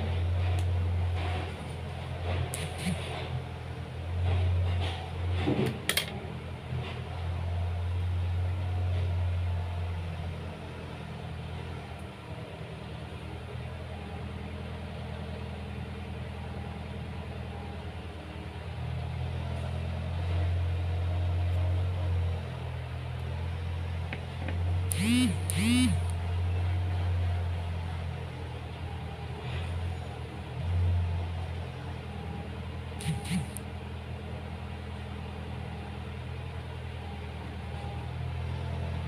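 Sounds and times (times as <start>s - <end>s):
low motor hum: 0.0s - 12.1s, 19.4s - 39.0s
sharp click: 2.6s - 3.1s, 33.0s - 33.6s.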